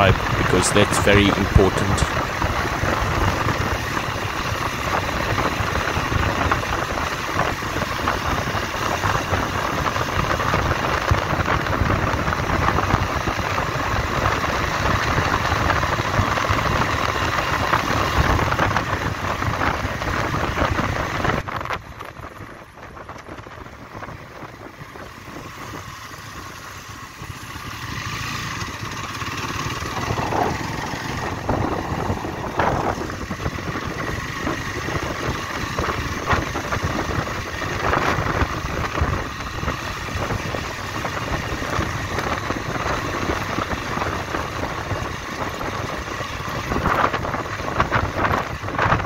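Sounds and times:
motorcycle engine: 0.0 - 49.0
wind noise on microphone: 2.0 - 25.9, 29.8 - 49.0.

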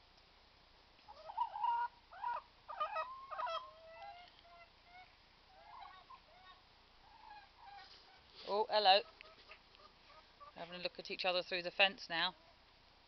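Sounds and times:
hens calling: 1.1 - 10.9.

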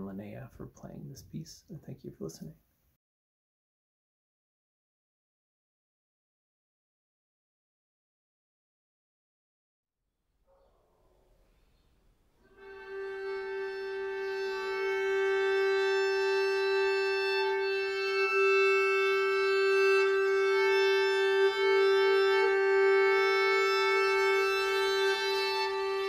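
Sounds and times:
violin and viola sustained drone: 12.5 - 26.0.

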